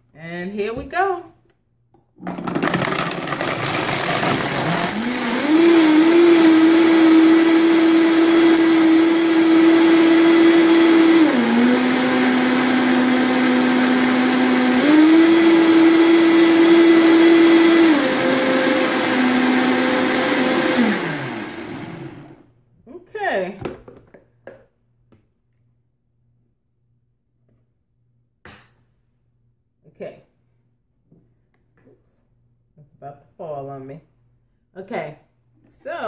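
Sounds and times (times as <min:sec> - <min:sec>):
blender motor whine: 0:02.2 - 0:22.4.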